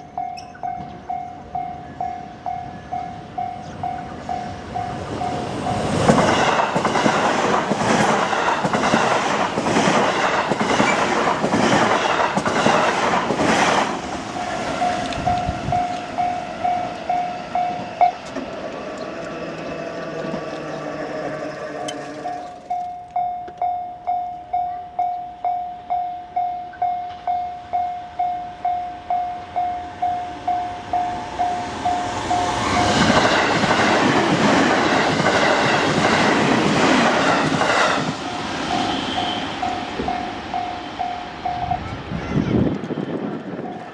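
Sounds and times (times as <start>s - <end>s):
level crossing warning bell: 0.0s - 6.1s, 14.4s - 33.2s, 38.7s - 42.0s
train rushing past: 0.0s - 23.7s, 26.8s - 43.9s
train wheels clacking on rails: 0.0s - 25.5s, 26.8s - 43.9s.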